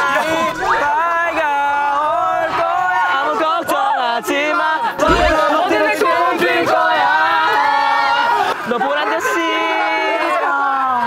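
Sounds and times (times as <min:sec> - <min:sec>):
short low thump: 0:05.0 - 0:05.5
young men singing pop song: 0:05.0 - 0:06.1.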